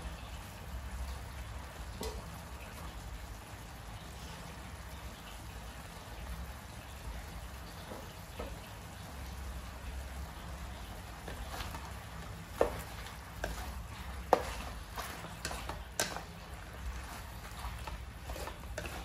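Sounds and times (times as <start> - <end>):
vegetables frying in a wok: 0.0 - 19.0
spatula knocking on pan: 11.2 - 19.0.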